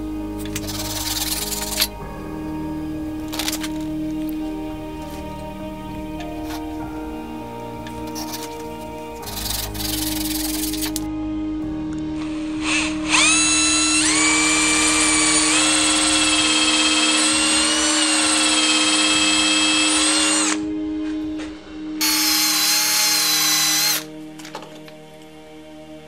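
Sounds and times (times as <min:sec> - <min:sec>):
electric drill boring into log: 0:00.6 - 0:01.9, 0:12.2 - 0:20.7, 0:22.0 - 0:24.1.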